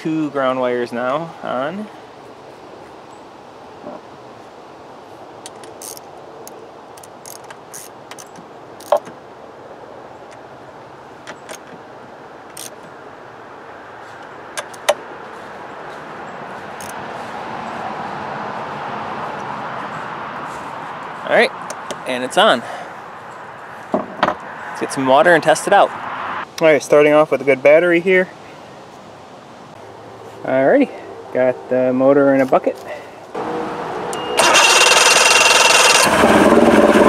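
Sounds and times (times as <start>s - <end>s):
ratchet wrench and bolts clicking: 5.5s - 6.0s, 7.0s - 9.1s, 12.5s - 12.8s.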